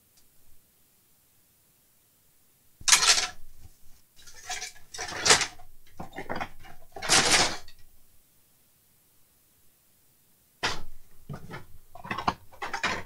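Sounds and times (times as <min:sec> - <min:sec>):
parts clattering and rattling: 0:02.8 - 0:03.5, 0:04.2 - 0:07.8, 0:10.6 - 0:13.0.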